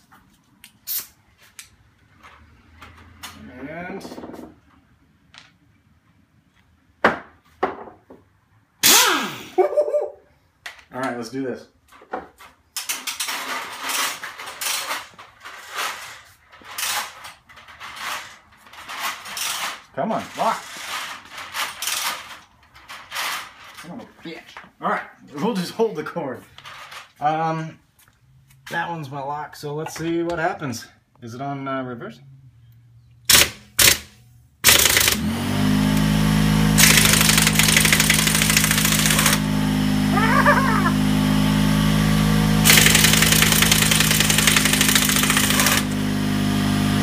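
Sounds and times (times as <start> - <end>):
air hose scraping on concrete: 0.8 - 1.5, 15.4 - 22.4
pneumatic impact wrench hammering: 8.8 - 9.6, 21.6 - 22.3, 33.3 - 41.0, 42.4 - 46.9
air compressor motor humming: 34.7 - 47.0.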